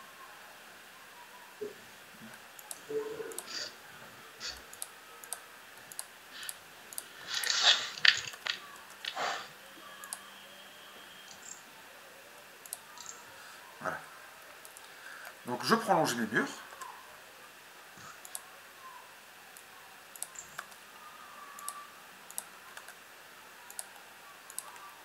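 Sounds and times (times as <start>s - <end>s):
mouse and keyboard clicks: 20.2s - 20.8s.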